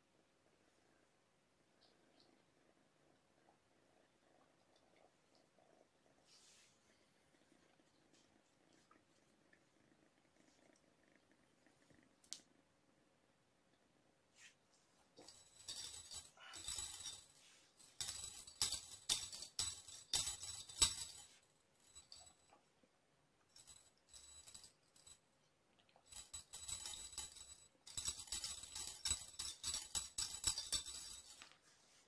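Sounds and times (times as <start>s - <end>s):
cat toy bell jingling: 15.2s - 22.5s, 23.5s - 25.2s, 26.1s - 31.5s.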